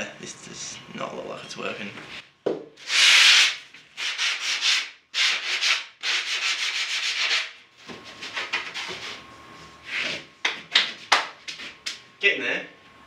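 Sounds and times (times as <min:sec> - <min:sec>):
sanding foam by hand: 0:02.9 - 0:07.5.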